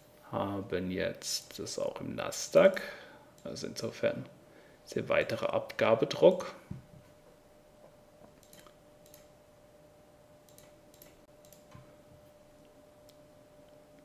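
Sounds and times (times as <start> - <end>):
faint steady hum: 0.0 - 14.0
computer mouse clicks: 8.4 - 9.3, 10.5 - 11.8.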